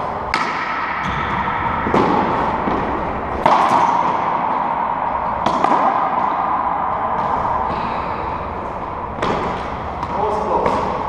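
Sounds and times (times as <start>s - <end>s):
steady background hum: 0.0s - 11.0s
racquetball ball cracking off wall: 0.3s - 4.6s, 5.4s - 7.4s.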